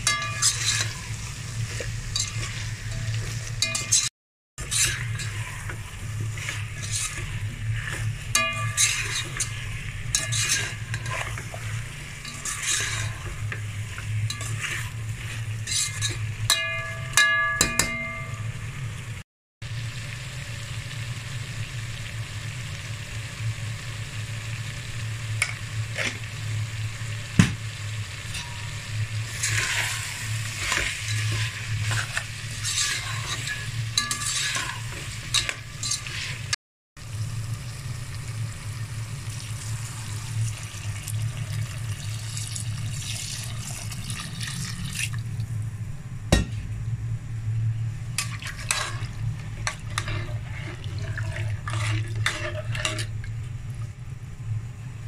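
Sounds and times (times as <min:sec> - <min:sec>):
food sizzling in a pot: 0:00.0 - 0:45.5, 0:48.1 - 0:54.3
low steady hum: 0:00.0 - 0:55.0
metal spoon scraping pot: 0:00.1 - 0:17.0, 0:29.3 - 0:36.5, 0:48.2 - 0:53.2
spoon clinking against pot: 0:15.7 - 0:18.4.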